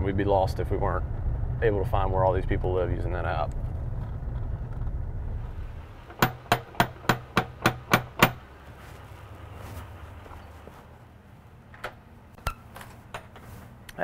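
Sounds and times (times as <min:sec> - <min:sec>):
low rumble: 0:00.0 - 0:06.2.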